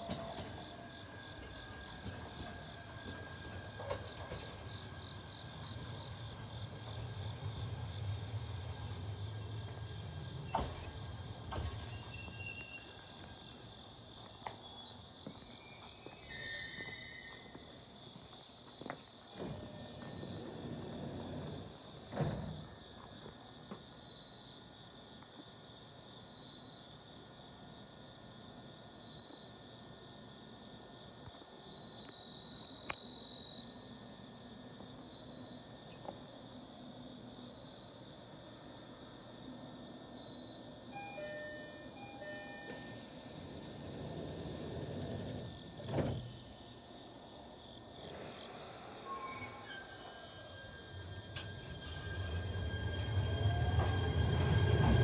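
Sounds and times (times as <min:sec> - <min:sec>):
electric train halting: 0:00.0 - 0:17.8, 0:19.3 - 0:22.8, 0:40.6 - 0:46.7, 0:47.9 - 0:55.0
crickets chirping: 0:00.0 - 0:55.0
train brake hiss: 0:14.8 - 0:17.8, 0:40.9 - 0:45.5, 0:47.9 - 0:55.0.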